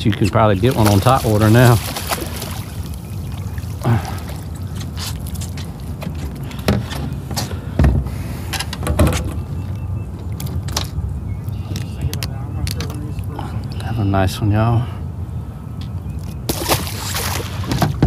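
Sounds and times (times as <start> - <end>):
fish splashing in a net: 0.6 - 4.5, 16.5 - 17.8
knocks and thumps on a deck: 6.0 - 8.2, 17.7 - 18.0.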